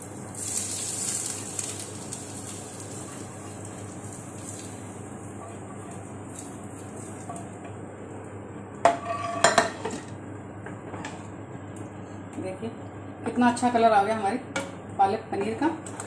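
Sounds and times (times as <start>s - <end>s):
hot oil sizzling: 0.0s - 7.6s.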